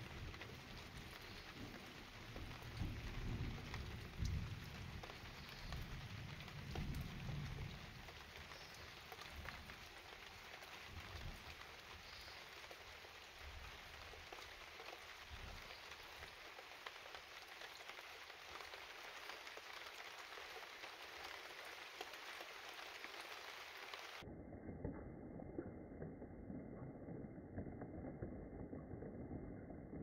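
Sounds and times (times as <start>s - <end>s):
steady rain falling: 0.0s - 30.0s.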